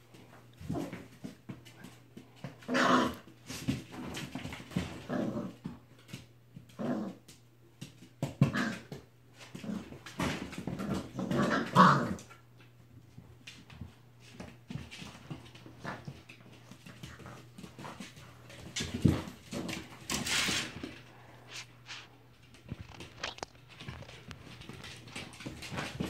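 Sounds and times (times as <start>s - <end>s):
puppies growling: 2.6s - 5.8s, 8.4s - 12.4s, 17.2s - 21.7s.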